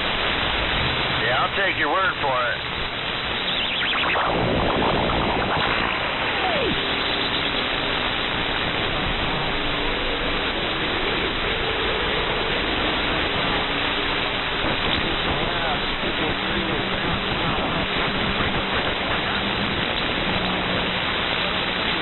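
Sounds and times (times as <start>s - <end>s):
radio static hiss: 1.2s - 10.3s
faint heterodyne tones: 3.3s - 8.0s
warbling sliding whistles: 3.4s - 7.7s.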